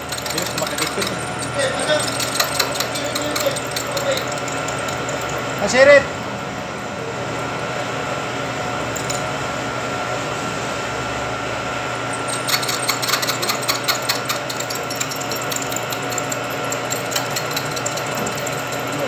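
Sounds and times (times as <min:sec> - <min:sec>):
cutter ticking and rattling: 0:00.0 - 0:06.0, 0:12.2 - 0:19.0
milling machine humming: 0:00.0 - 0:19.0.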